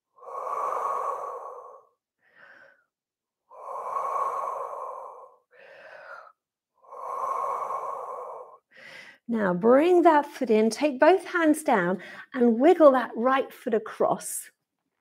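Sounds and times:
woman breathing slowly: 0.0 - 9.3.

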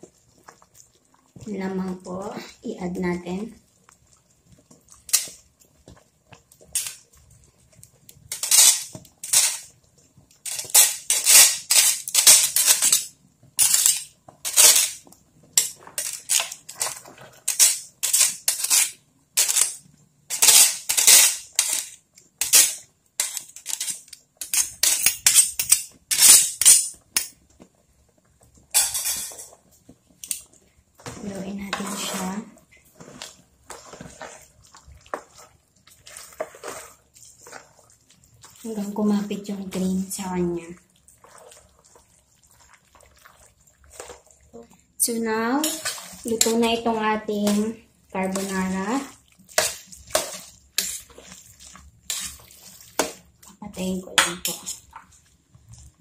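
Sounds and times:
spatula stirring pasta in a pot: 0.0 - 56.0.

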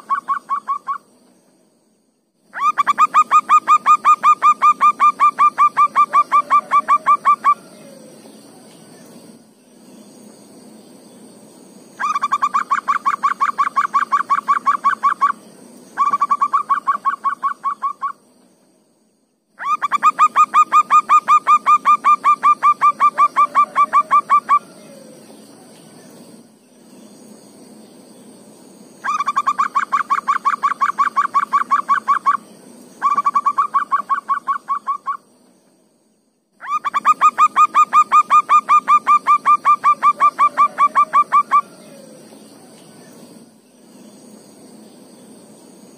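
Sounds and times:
high insect buzz: 0.0 - 45.9
dove cooing: 2.6 - 8.3, 19.6 - 25.4, 36.6 - 42.4.

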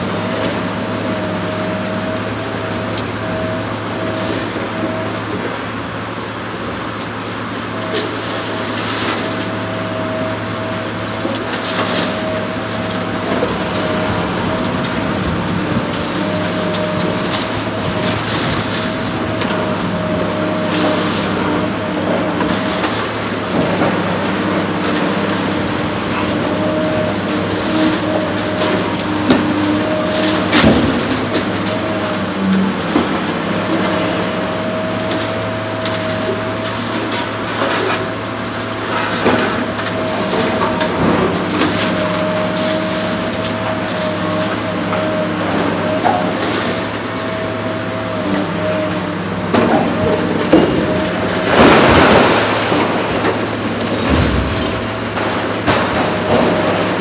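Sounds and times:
excavator engine whine: 0.0 - 57.0
cracks and knocks of breaking material: 51.4 - 56.9.

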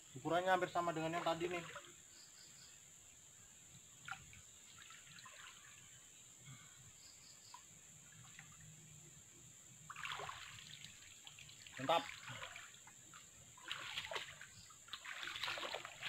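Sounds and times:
water dripping and splashing: 0.9 - 2.0, 4.0 - 6.0, 7.5 - 8.9, 9.8 - 16.0.

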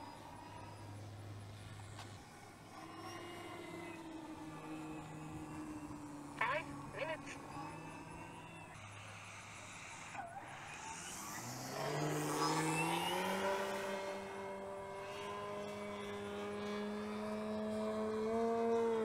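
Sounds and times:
propeller rushing: 0.0 - 10.1
model airplane motor whine: 0.0 - 19.0.

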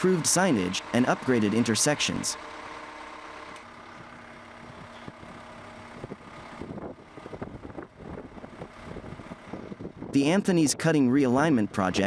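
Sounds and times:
faint engine running: 0.0 - 12.0.

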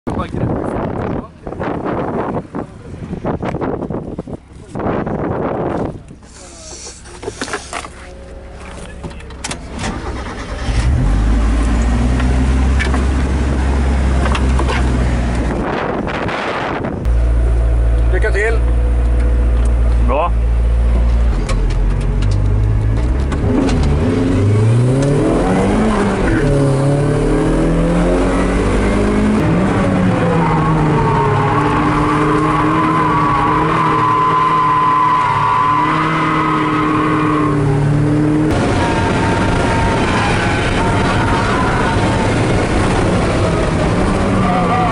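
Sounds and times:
car engine revving: 9.6 - 44.9.

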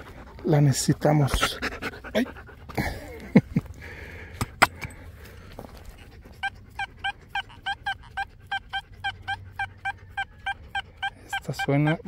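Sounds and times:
metal detector beeping: 6.4 - 12.0.

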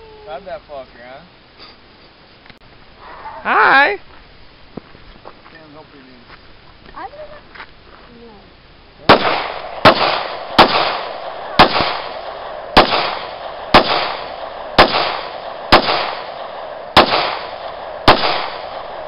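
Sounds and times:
gunshots with echo: 9.0 - 19.0.

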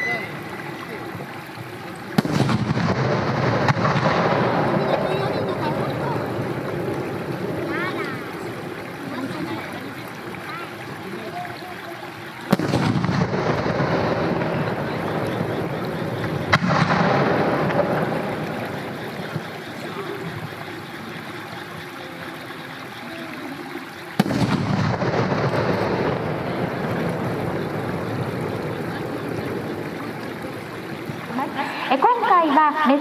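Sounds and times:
rolling echo: 0.0 - 33.0
firework shells bursting: 1.8 - 7.6, 12.5 - 19.5, 24.2 - 29.1.

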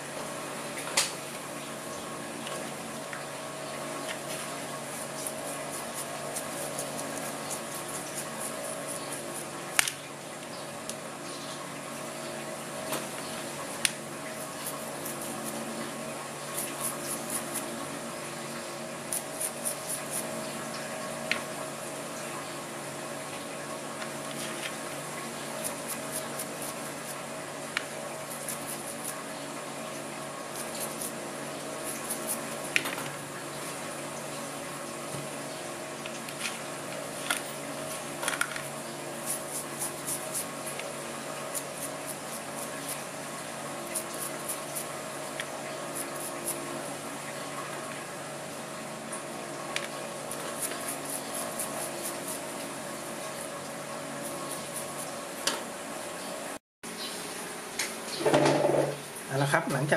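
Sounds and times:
steady background hum: 0.0 - 59.9
brush scrubbing: 4.3 - 9.5, 19.1 - 20.4, 25.6 - 27.2, 28.3 - 29.2, 30.5 - 31.2, 31.8 - 32.7, 39.2 - 40.9, 41.5 - 43.1, 43.8 - 44.9, 50.3 - 52.6, 54.2 - 55.1.

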